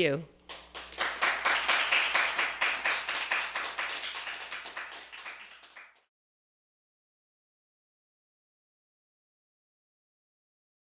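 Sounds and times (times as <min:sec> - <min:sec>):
applause: 0:00.5 - 0:06.1.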